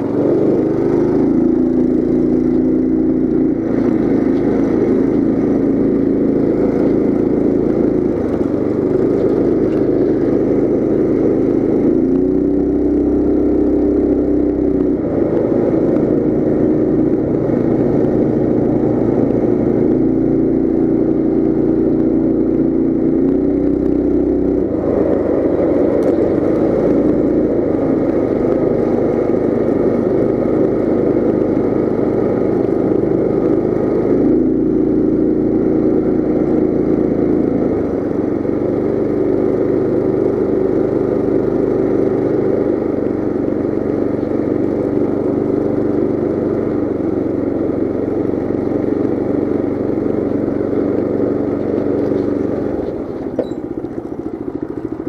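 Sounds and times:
mini bike engine running: 0.0s - 55.0s.

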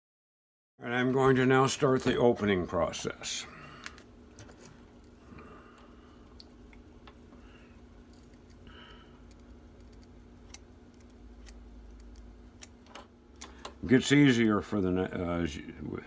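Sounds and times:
steady low hum: 0.8s - 16.0s.

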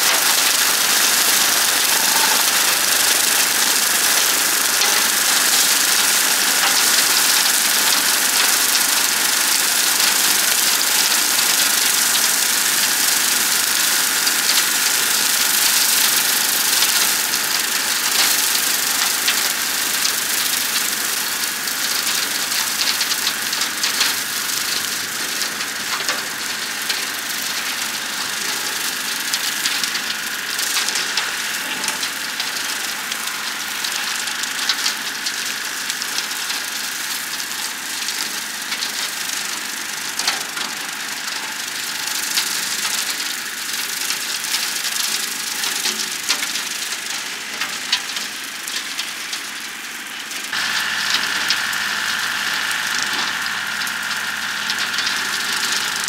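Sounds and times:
rotary cutter whine: 0.0s - 46.2s, 48.6s - 56.0s
tractor diesel engine running: 0.0s - 56.0s.

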